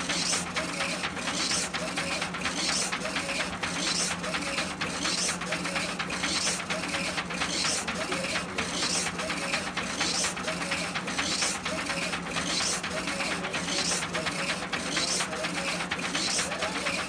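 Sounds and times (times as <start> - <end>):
printhead carriage whirring: 0.0 - 17.0.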